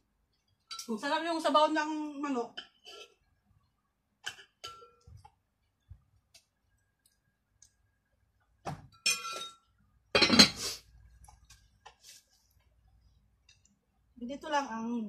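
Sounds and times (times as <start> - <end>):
spoons and dishes clinking: 4.2 - 5.1, 8.9 - 10.7.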